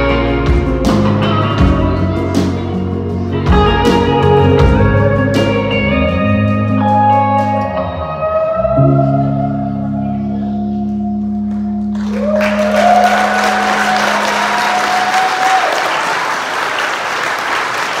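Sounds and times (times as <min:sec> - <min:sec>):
electric guitar chord ringing: 0:00.0 - 0:15.1
audience applause: 0:11.5 - 0:18.0
person whooping: 0:12.0 - 0:16.3.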